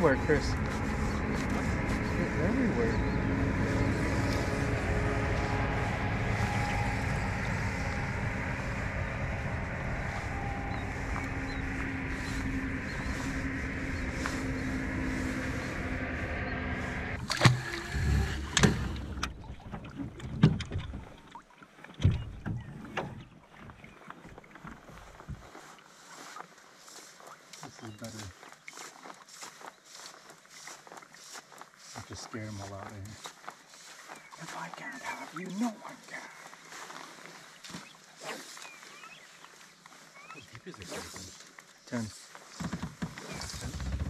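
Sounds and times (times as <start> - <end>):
boat motor humming: 0.0 - 28.7, 30.2 - 44.0
knocks and clicks on boat: 17.2 - 25.4, 42.5 - 44.0.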